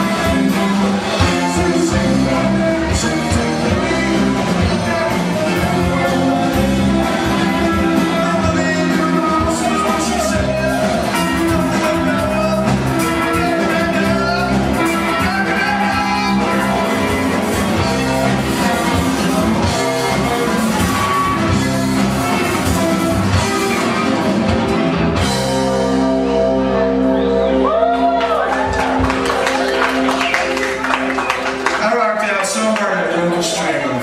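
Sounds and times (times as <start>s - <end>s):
person singing lead vocal: 0.0s - 21.6s
electric bass: 0.0s - 31.7s
electric guitar: 0.0s - 31.8s
drum kit: 0.0s - 31.9s.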